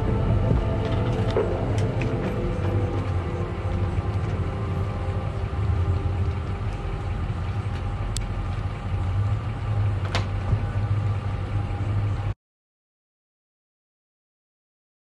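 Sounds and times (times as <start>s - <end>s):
truck engine idling: 0.0s - 12.4s.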